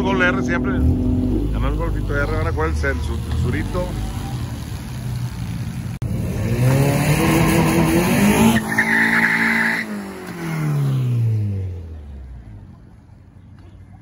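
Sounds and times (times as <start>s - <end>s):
car engine revving: 0.0s - 13.3s
tire squeal: 7.2s - 10.2s.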